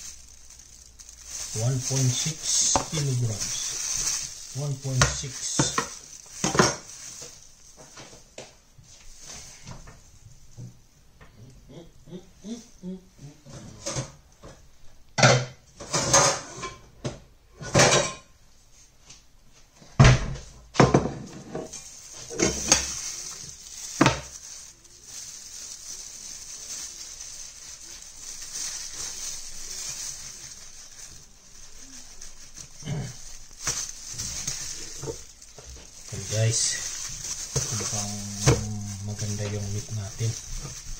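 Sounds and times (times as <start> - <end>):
steady high hiss: 0.0 - 10.8, 21.6 - 40.9.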